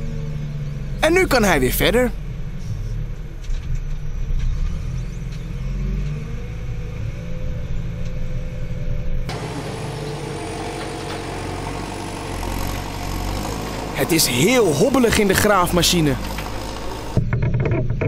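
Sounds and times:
engine whine: 0:00.0 - 0:17.4
diesel engine rumble: 0:00.0 - 0:18.0.

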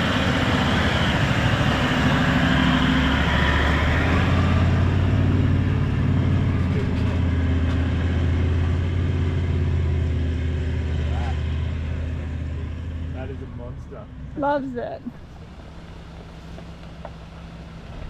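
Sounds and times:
engine running at low speed: 0:00.0 - 0:18.0
tyres on gravel: 0:14.4 - 0:18.0.

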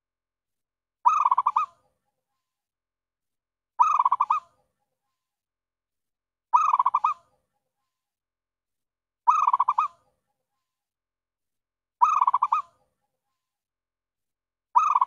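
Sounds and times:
dove rapid staccato cooing: 0:03.8 - 0:04.4, 0:09.3 - 0:09.9, 0:14.8 - 0:15.0.

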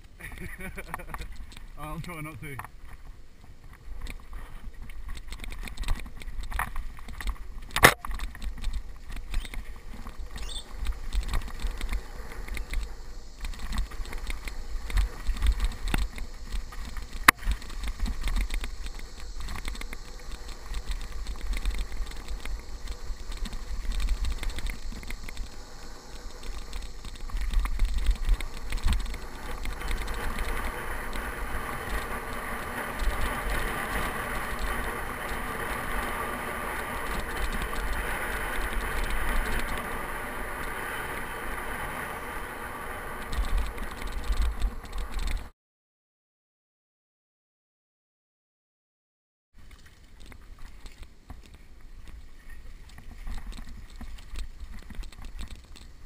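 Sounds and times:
bike tyres on dirt: 0:00.0 - 0:45.5, 0:49.5 - 0:56.0
wind rumble on microphone: 0:02.8 - 0:45.5, 0:49.6 - 0:56.0
bike rattling and knocking: 0:03.9 - 0:41.4, 0:43.2 - 0:45.5, 0:49.6 - 0:56.0.

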